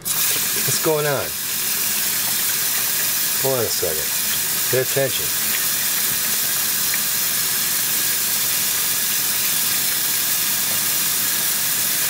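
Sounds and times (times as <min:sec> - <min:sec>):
faucet water splashing into sink: 0:00.0 - 0:12.0.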